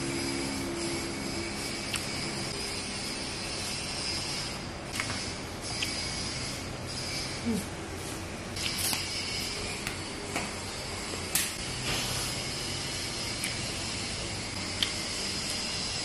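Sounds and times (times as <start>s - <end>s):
chewing clicks and smacks: 1.9s - 2.1s.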